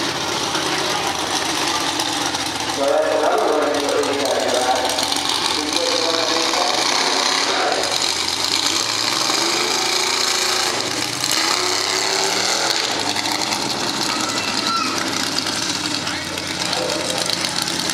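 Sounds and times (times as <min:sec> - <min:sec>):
truck engine revving: 0:00.0 - 0:17.9.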